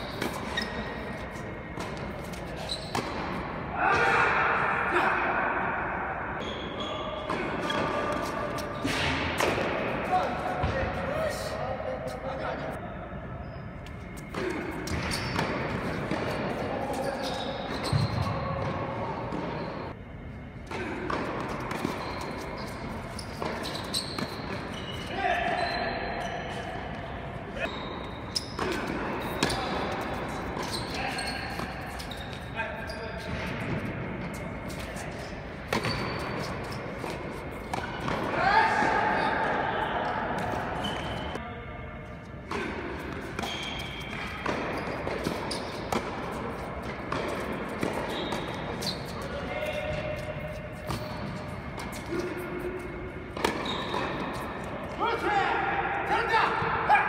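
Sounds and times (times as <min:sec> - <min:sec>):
tennis balls bouncing: 0:20.6 - 0:25.0, 0:35.6 - 0:38.9, 0:42.4 - 0:55.0.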